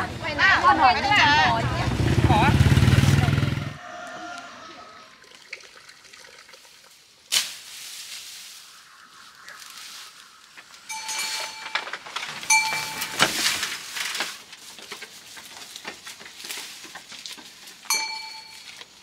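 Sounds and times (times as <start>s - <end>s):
fern fronds rustling: 6.7s - 19.0s
goat bell clinking: 10.9s - 13.5s, 17.8s - 19.0s.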